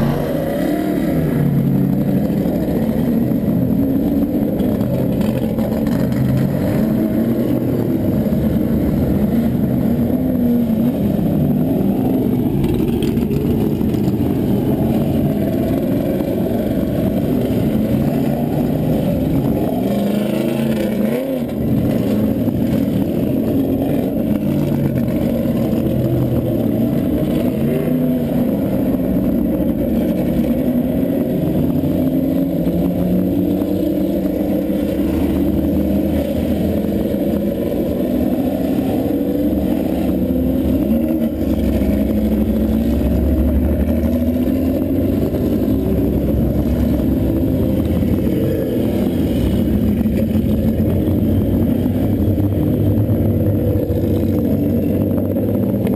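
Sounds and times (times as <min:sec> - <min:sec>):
race car engine at speed: 0:00.0 - 0:55.9.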